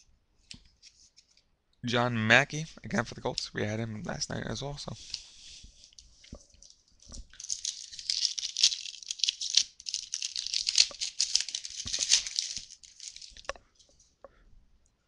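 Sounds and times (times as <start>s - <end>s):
foil wrapper tearing and crinkling: 6.6s - 13.5s.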